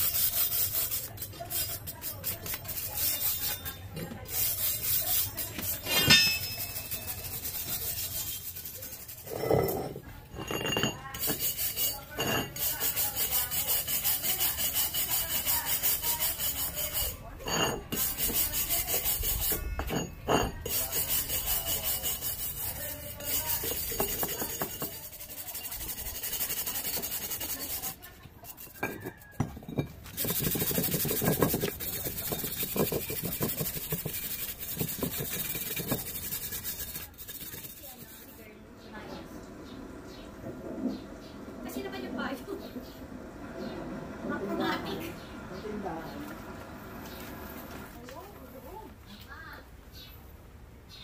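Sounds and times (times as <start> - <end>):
scraper scraping rust off metal: 0.0 - 38.5.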